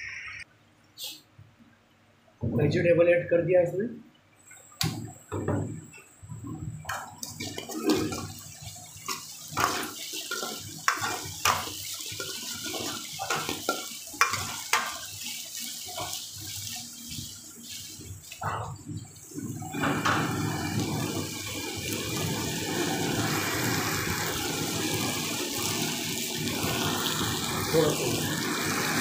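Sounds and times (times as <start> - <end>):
vegetables sizzling in hot oil: 6.8 - 18.4, 19.0 - 29.0.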